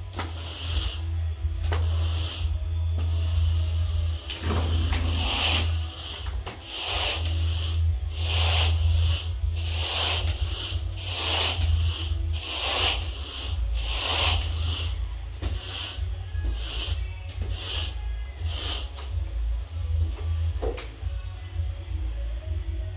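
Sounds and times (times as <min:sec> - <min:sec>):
steady low hum: 0:00.0 - 0:17.3
carpet rake brushing carpet: 0:00.2 - 0:01.1, 0:01.7 - 0:19.0.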